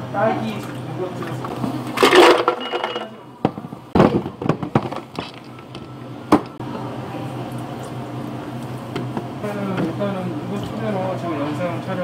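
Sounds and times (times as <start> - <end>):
ice clattering into blender jar: 2.0 - 3.1.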